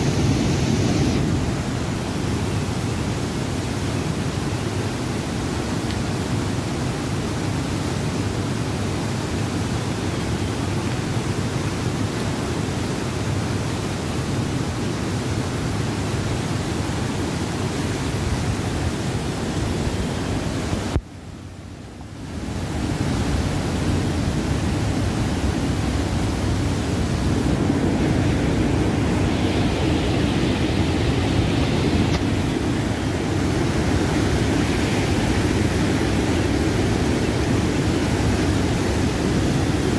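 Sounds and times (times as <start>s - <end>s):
river rushing over boulders: 0.0s - 39.9s.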